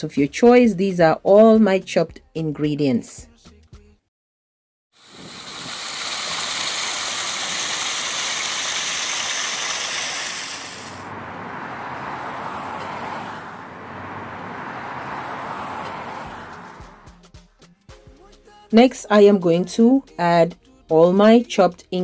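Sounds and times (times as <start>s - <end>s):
rushing outdoor ambience: 5.0s - 17.2s.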